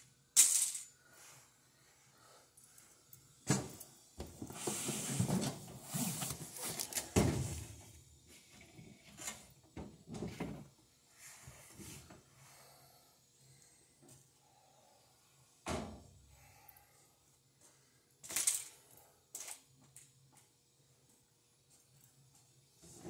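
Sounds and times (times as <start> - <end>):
parts rattling and scraping: 0.4 - 1.0, 18.2 - 19.7.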